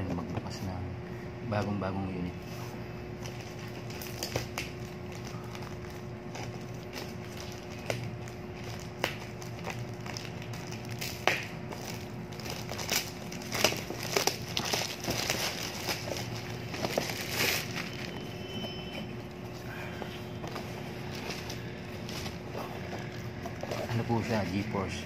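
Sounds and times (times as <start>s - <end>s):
faint steady hum: 0.0s - 25.0s
plastic pouch tearing and crinkling: 3.2s - 18.3s.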